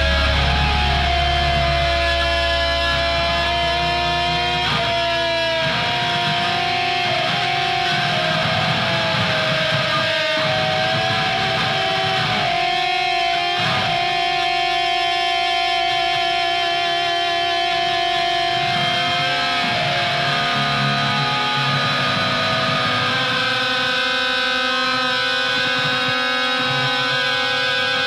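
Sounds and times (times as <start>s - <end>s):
deep low note: 0.0s - 5.9s
electric guitars ringing: 0.0s - 28.0s.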